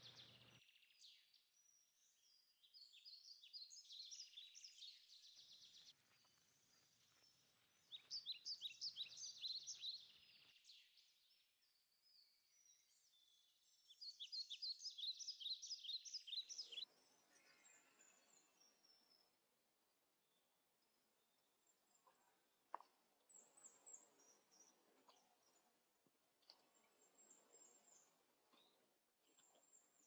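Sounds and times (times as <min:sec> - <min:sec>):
songbirds chirping: 0:00.0 - 0:30.0.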